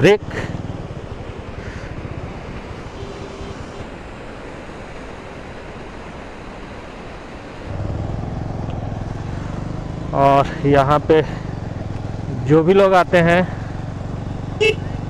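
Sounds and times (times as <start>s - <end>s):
low engine hum: 0.0s - 15.0s
water rushing: 0.9s - 11.8s
wind on microphone: 1.5s - 4.0s.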